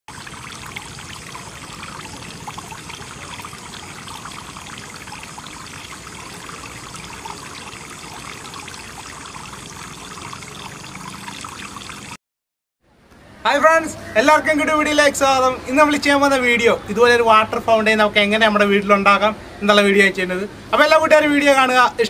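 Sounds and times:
water streams splashing into basin: 0.1 - 12.2.

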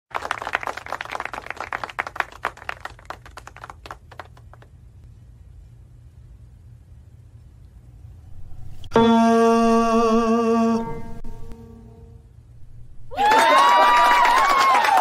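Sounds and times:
hands clapping: 0.1 - 4.8, 13.3 - 15.0
low steady hum: 1.2 - 14.6.

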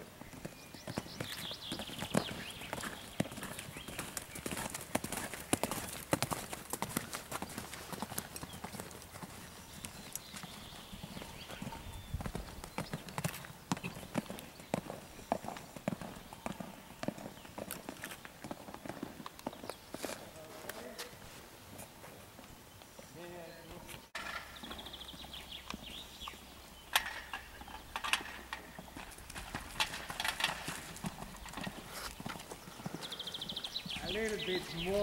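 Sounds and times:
hoofbeats on sand: 0.3 - 21.2.

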